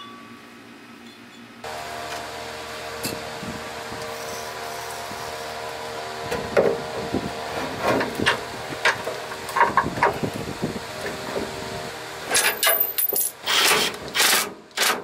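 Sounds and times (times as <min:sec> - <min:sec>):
steady electric fan hum: 0:00.0 - 0:14.8
metal compressor knocks and clatter: 0:06.2 - 0:10.4.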